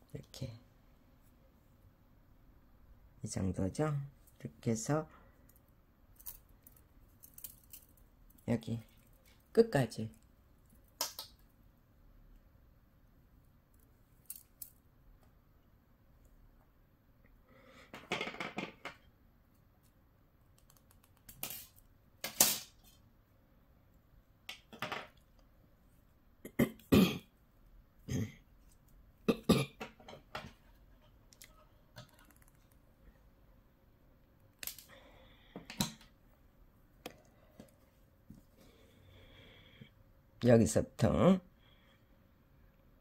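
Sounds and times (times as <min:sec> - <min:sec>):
sharp clicks and taps: 0:20.5 - 0:21.4.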